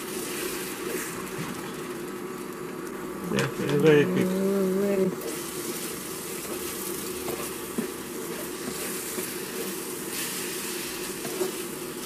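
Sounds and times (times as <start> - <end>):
eggs sizzling in a frying pan: 0.0 - 12.0
spatula scraping and knocking pan: 6.4 - 10.4, 11.0 - 11.7.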